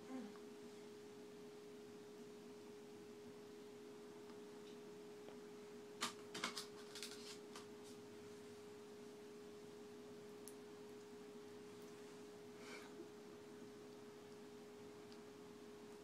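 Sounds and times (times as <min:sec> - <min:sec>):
faint steady hum: 0:00.0 - 0:16.0
light clicks and scrapes: 0:06.4 - 0:08.0.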